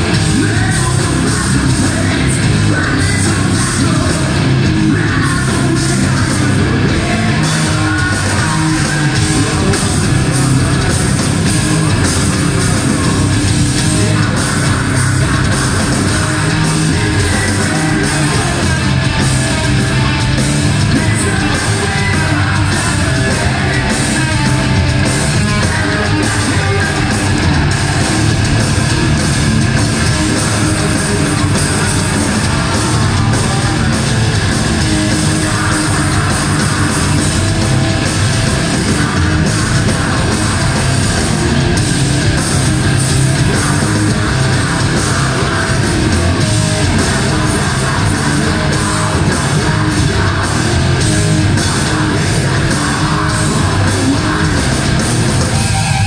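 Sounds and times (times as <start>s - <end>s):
distorted guitars: 0.0s - 56.0s
live metal band: 0.0s - 56.0s
sung and yelled vocals: 0.0s - 56.0s.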